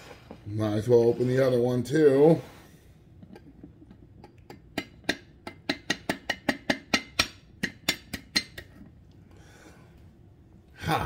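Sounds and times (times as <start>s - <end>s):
metal utensil tapping eggshell: 3.3s - 8.8s.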